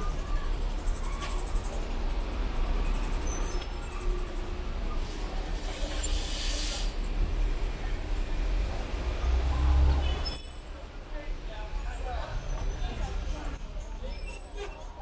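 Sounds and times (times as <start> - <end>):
traffic rumble: 0.0 - 15.0
short hiss: 6.0 - 6.9.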